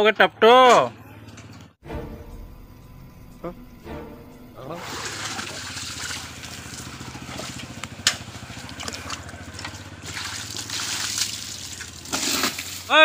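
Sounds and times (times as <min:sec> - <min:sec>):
low engine hum: 0:00.9 - 0:12.9
water sloshing in metal bucket: 0:04.6 - 0:12.9.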